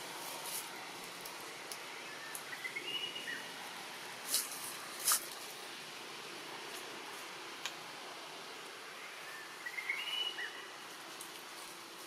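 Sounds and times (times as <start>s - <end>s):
steady hiss: 0.0s - 12.0s
faint high whistled call: 9.2s - 10.7s.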